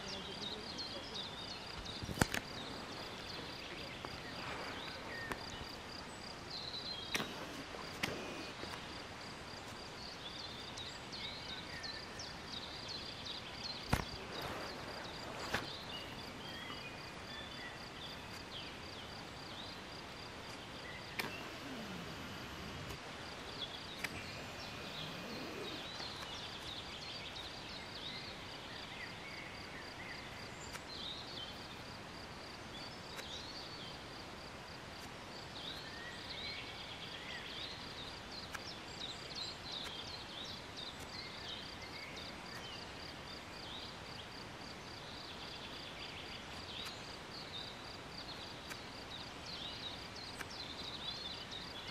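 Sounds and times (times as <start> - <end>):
bird chirps and trills: 20.5 - 29.2.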